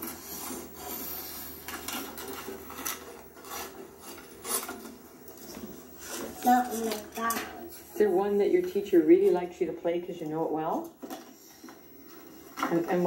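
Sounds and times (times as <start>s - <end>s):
book pages flipping and rustling: 0.0s - 8.0s
rubbing and handling noises: 0.0s - 9.4s, 11.0s - 13.0s.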